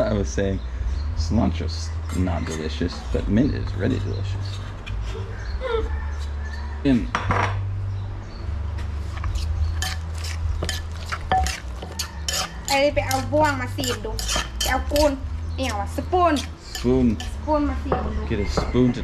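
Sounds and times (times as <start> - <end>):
wooden pestle pounding in mortar: 9.8 - 15.2.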